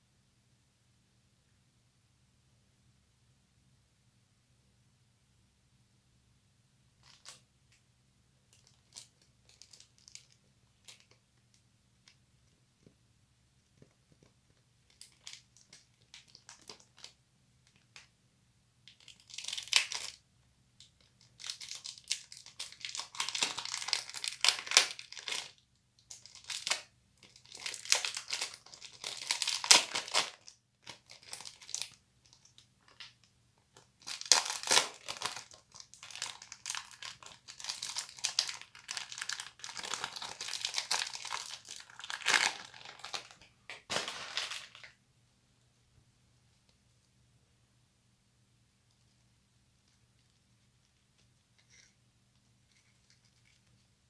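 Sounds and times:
plastic wrapper crinkling and tearing: 7.0s - 7.4s, 8.5s - 11.2s, 14.9s - 18.0s, 18.9s - 20.2s, 21.0s - 33.2s, 33.8s - 45.0s.

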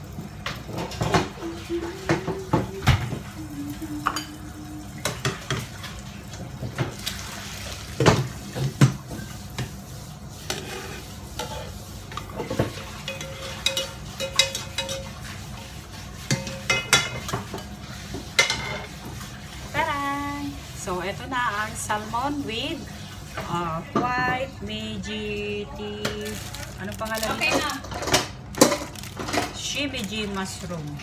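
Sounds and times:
spatula scraping frying pan: 9.6s - 19.7s.

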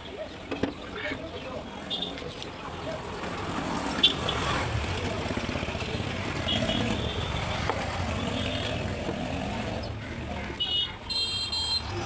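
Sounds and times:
road traffic noise: 0.0s - 12.0s.

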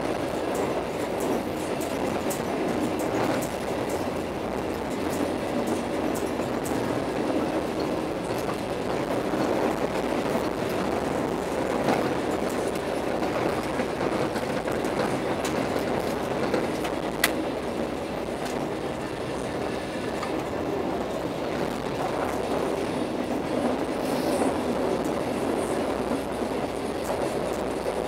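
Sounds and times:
train wheels rolling on rails: 0.0s - 28.0s.

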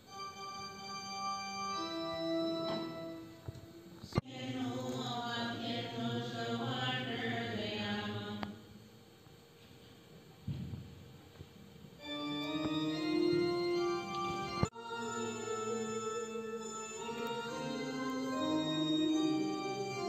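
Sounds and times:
church organ chords: 0.0s - 4.0s, 12.0s - 20.0s
voices singing a chant: 4.2s - 8.6s, 14.6s - 20.0s.

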